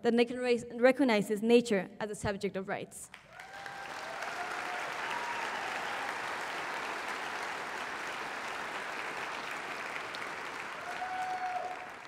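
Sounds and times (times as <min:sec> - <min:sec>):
audience applauding: 0:03.1 - 0:12.0.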